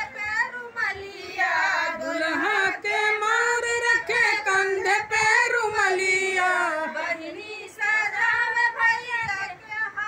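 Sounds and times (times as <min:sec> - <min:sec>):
women singing folk song: 0:00.0 - 0:10.0.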